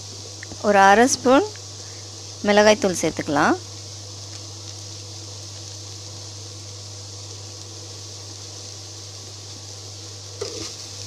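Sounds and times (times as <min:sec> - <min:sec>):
electrical hum: 0:00.0 - 0:11.0
fan-like hiss: 0:00.0 - 0:11.0.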